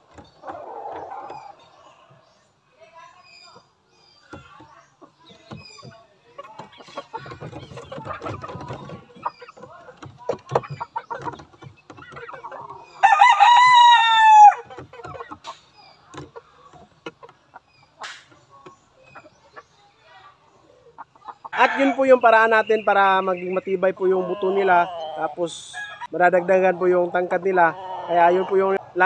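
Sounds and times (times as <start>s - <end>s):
rooster crowing: 13.0s - 14.6s.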